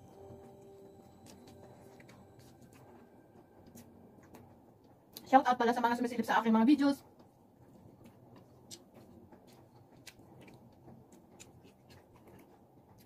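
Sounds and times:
person chewing food: 0.1 - 4.4, 7.6 - 13.0.

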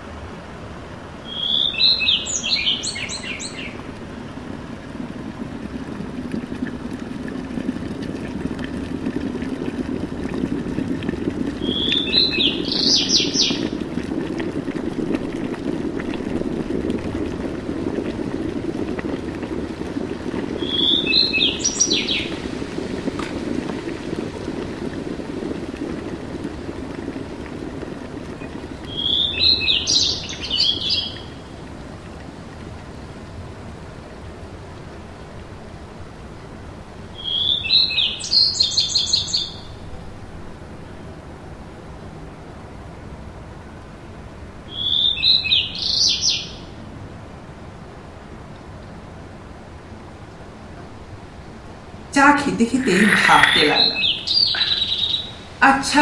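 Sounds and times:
bird chirping call: 1.3 - 3.8, 52.9 - 55.3.

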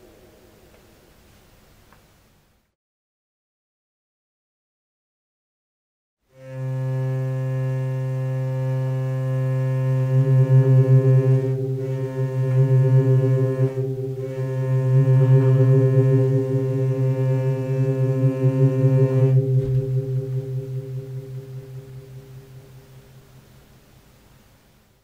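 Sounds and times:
hurdy-gurdy drone and melody: 6.4 - 23.5.

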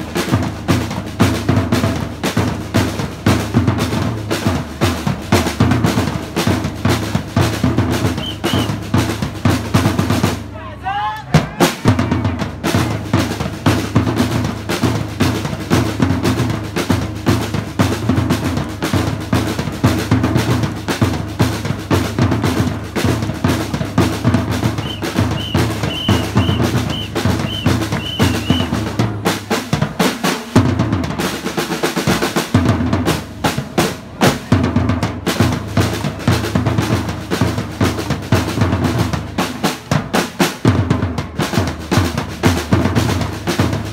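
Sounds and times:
rapid snare drum strokes: 0.0 - 43.9
short high pips: 8.2 - 8.8, 24.8 - 28.8
bass drums pulsing: 24.0 - 29.2.

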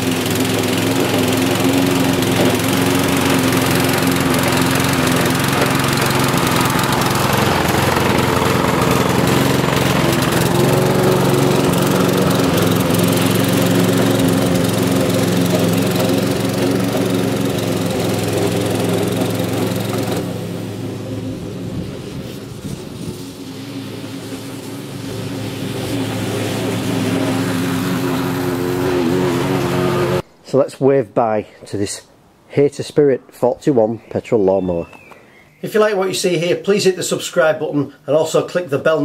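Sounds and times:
lawnmower cutting grass: 0.0 - 30.3.

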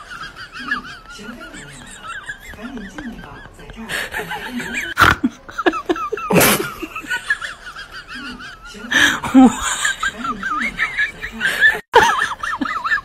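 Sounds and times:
people laughing: 0.0 - 13.0.

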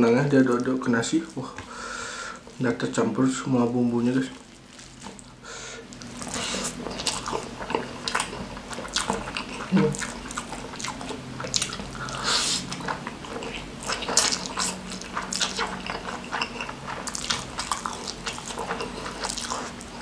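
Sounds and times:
wet chewing and lip smacks: 5.9 - 20.0
slurping noodles: 6.0 - 20.0.

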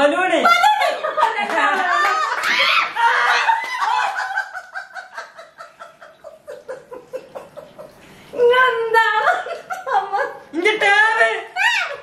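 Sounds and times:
people laughing hard: 0.5 - 8.0.

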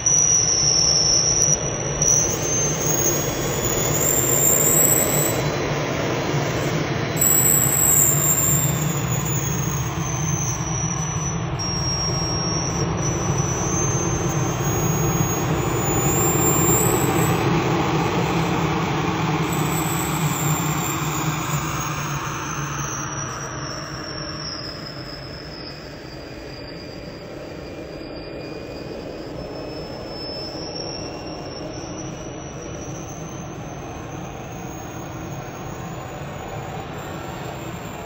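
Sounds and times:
model jet turbine roaring and whining: 11.7 - 23.1.

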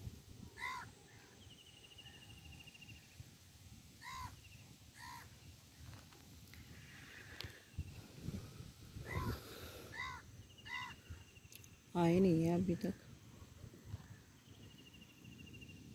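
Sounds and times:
faint bird calls: 0.5 - 3.2, 4.0 - 8.0, 9.0 - 11.5.

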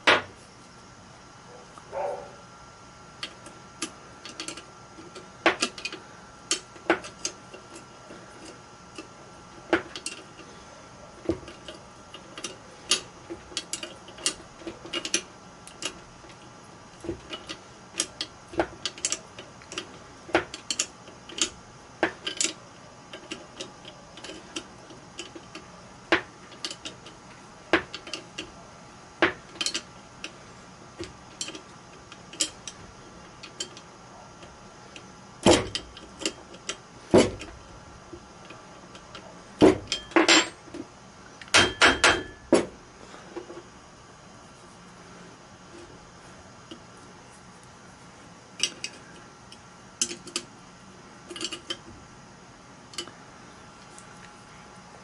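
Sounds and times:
wrench clicking on metal bolts: 17.3 - 25.6, 29.4 - 29.9, 50.0 - 50.5, 51.3 - 51.8.

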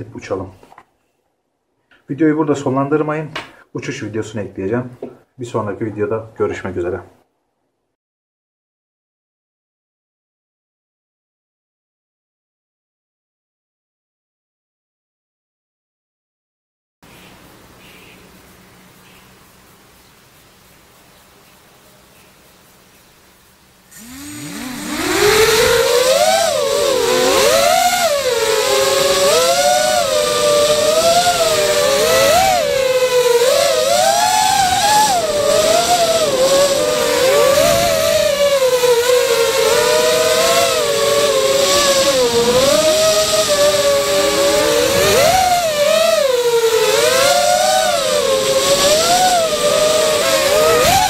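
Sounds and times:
quadcopter motors buzzing: 23.9 - 51.0.

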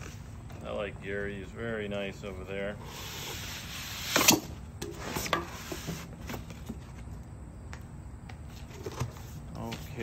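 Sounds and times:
cardboard scraping rustle: 3.0 - 7.1.

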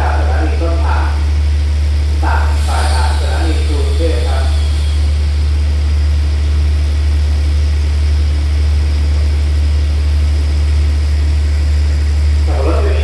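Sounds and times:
diesel train engine idling: 0.0 - 13.0.

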